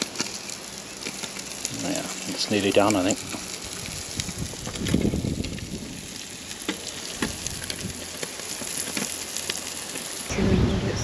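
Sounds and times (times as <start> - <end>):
food sizzling on griddle: 0.0 - 11.0
fat popping and spitting: 6.5 - 9.6.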